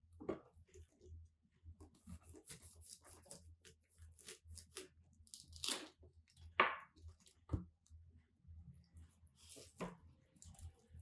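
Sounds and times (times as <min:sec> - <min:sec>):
knife cutting pineapple: 0:01.9 - 0:06.0.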